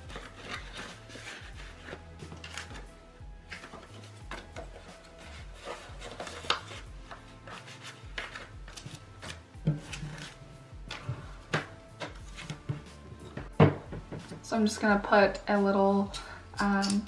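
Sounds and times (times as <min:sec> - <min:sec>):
faint background music: 0:00.0 - 0:17.0
paper rustling and tapping: 0:03.5 - 0:14.4.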